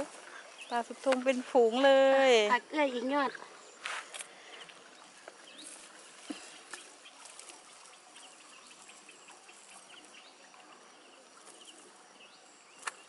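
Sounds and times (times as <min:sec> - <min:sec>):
small birds chirping: 0:00.0 - 0:13.0
wet net rustling: 0:03.8 - 0:10.1.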